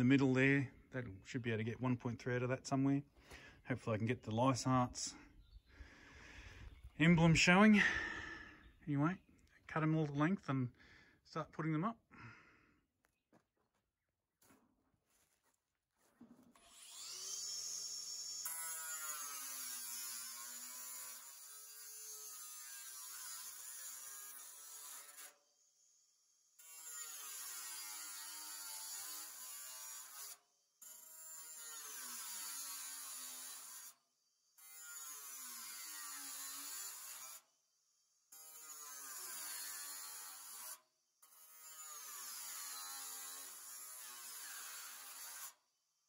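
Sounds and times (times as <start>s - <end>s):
angle grinder cutting metal: 16.6s - 34.0s, 34.6s - 45.7s.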